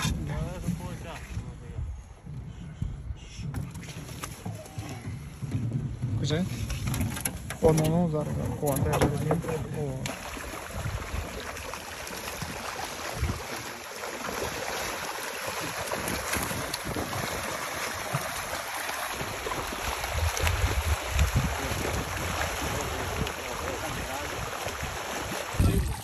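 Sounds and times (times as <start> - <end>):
low thuds: 0.0 - 10.0
fish thrashing and splashing: 8.2 - 26.0.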